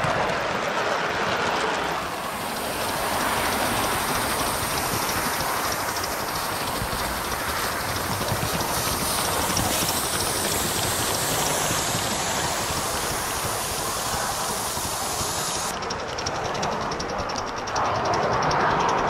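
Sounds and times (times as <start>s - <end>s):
wheels clicking on rails: 0.0s - 19.0s
steam hiss: 2.0s - 15.8s.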